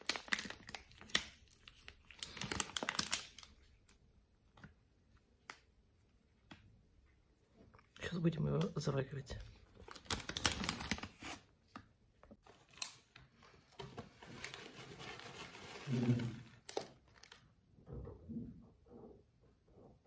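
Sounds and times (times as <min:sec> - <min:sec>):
plastic packaging crinkling: 0:00.0 - 0:04.0, 0:09.7 - 0:11.4, 0:14.2 - 0:17.4.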